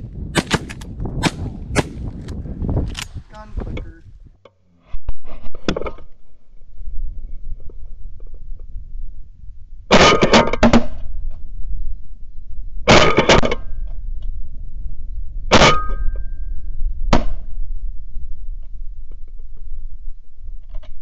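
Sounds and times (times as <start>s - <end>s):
low wind rumble on microphone: 0.0s - 21.0s
shotgun blasts: 0.3s - 2.1s.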